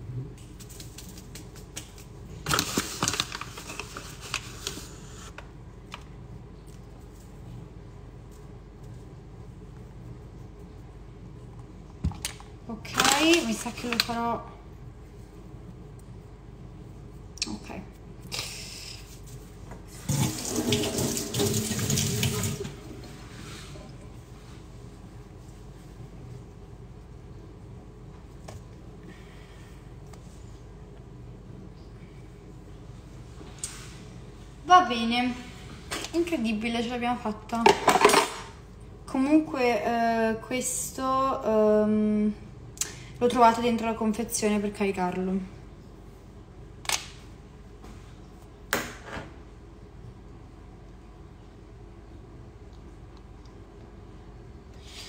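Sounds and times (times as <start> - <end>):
water running from a tap: 19.9 - 22.8.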